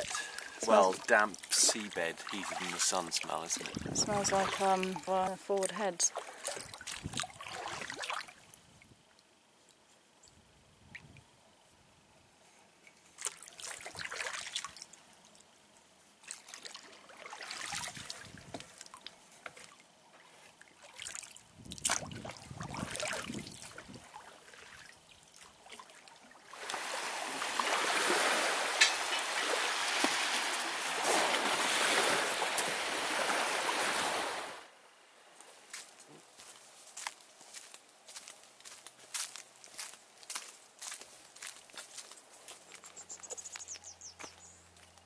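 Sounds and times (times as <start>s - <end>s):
shallow water splashing: 0.0s - 8.6s, 13.2s - 15.3s, 16.2s - 34.7s.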